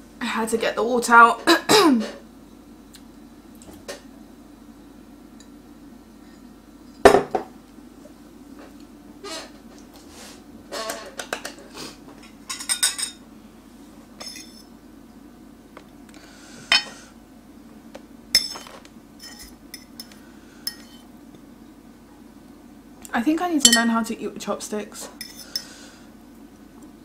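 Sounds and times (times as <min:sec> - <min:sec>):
steady low hum: 0:00.0 - 0:10.8, 0:11.6 - 0:27.0
fork clinking against bowls: 0:18.4 - 0:21.0, 0:23.7 - 0:23.9, 0:25.2 - 0:25.7.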